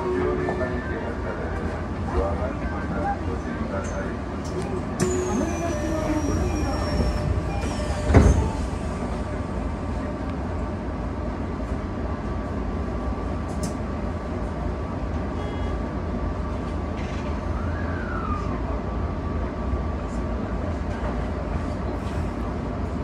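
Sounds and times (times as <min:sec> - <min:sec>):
train equipment humming: 0:00.0 - 0:15.9.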